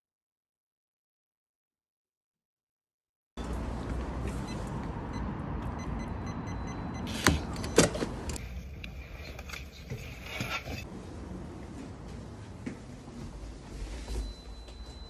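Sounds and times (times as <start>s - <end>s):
smart lock beeps: 4.5s - 8.0s.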